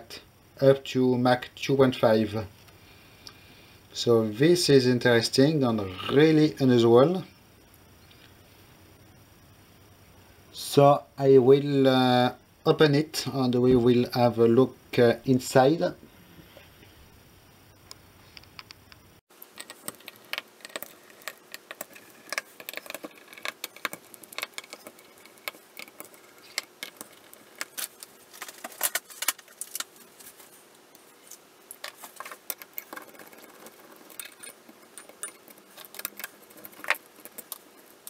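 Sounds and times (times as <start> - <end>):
metal tools clicking on metal: 34.1 - 37.6.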